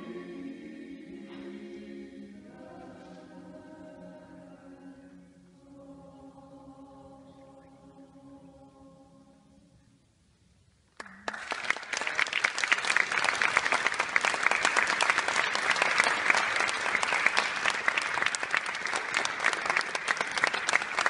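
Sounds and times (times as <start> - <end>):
audience applauding: 11.0 - 21.0.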